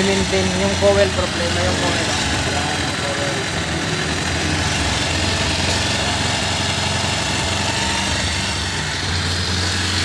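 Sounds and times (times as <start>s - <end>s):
motorcycle engine idling: 0.0s - 10.0s.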